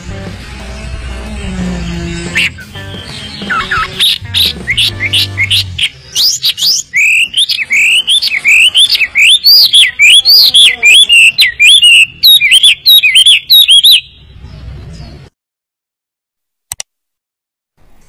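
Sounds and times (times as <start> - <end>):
bird singing whistled notes: 1.8 - 15.2.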